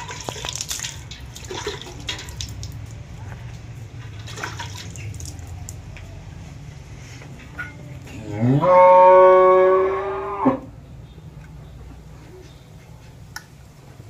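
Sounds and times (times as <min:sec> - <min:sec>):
cow mooing: 0:08.2 - 0:10.7.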